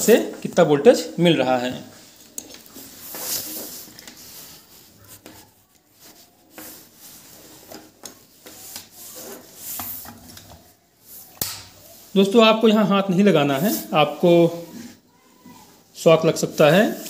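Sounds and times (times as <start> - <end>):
wires rubbing on wooden table: 2.0 - 12.2.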